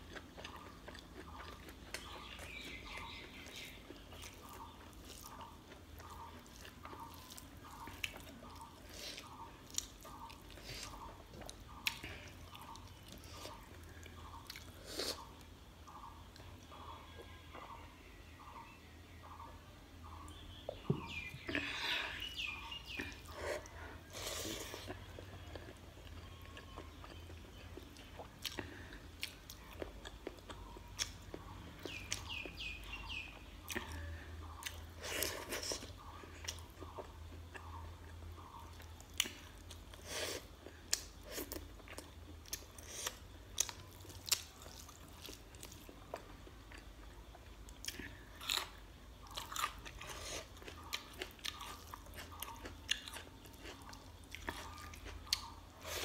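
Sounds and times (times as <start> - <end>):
chewing and biting food: 0.0 - 15.2, 33.6 - 56.0.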